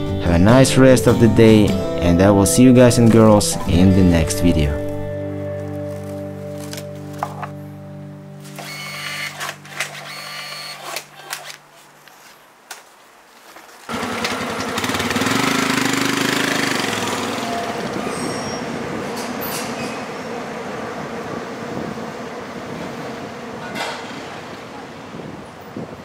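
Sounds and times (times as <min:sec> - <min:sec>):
motorcycle engine pulling away: 0:13.9 - 0:19.0.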